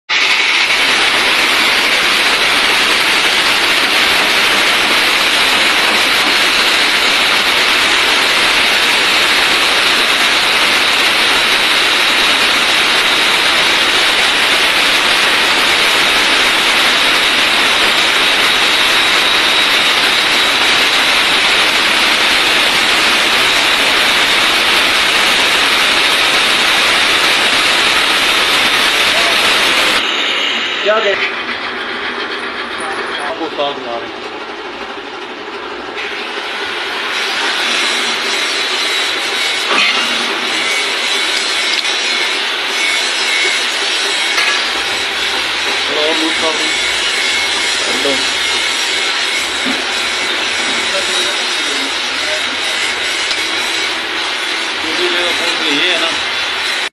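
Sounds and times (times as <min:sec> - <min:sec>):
angle grinder grinding steel: 0:37.2 - 0:56.9.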